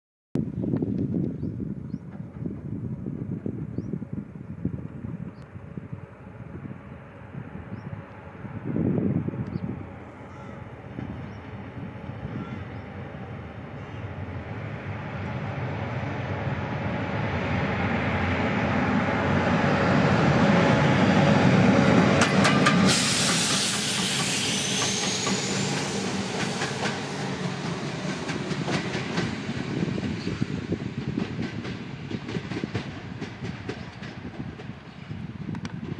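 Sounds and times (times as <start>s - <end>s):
locomotive rail rumble: 0.4s - 35.9s
wheels clacking over rail joints: 22.1s - 23.0s
sharp hiss: 22.7s - 27.2s.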